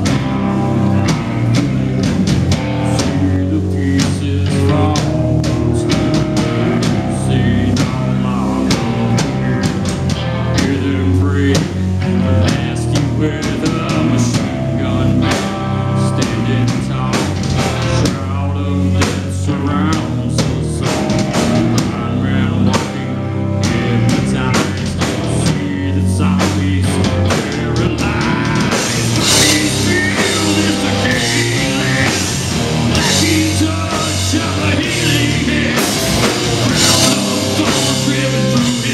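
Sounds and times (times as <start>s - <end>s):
bass guitar: 0.0s - 38.9s
distorted electric guitar: 0.0s - 38.9s
drum kit pounding: 0.0s - 38.9s.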